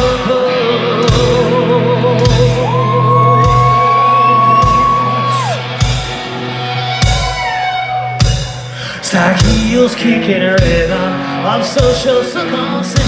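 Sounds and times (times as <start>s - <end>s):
distorted guitars and bass: 0.0s - 13.0s
singer wailing high notes: 1.4s - 5.7s.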